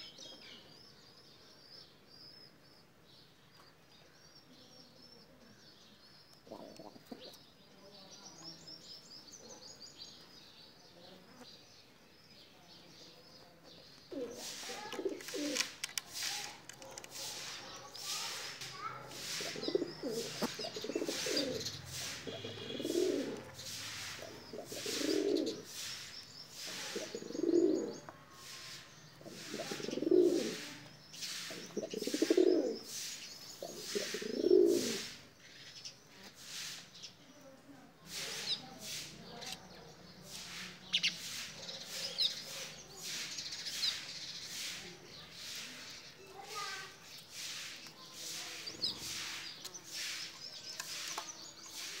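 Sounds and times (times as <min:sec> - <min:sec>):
birds chirping: 0:00.0 - 0:52.0
pigeons cooing: 0:06.4 - 0:07.4, 0:14.1 - 0:25.9, 0:26.5 - 0:28.1, 0:29.2 - 0:35.2.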